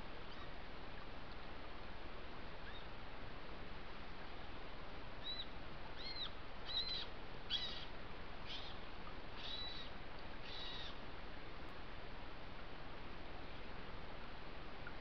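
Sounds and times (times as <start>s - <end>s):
background hiss: 0.0s - 15.0s
high-pitched animal calls: 6.0s - 7.9s, 9.4s - 11.0s.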